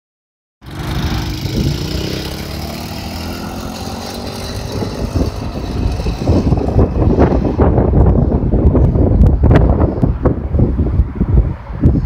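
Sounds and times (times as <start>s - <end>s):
quad engine accelerating: 0.6s - 9.2s
wind buffeting microphone: 0.7s - 12.0s.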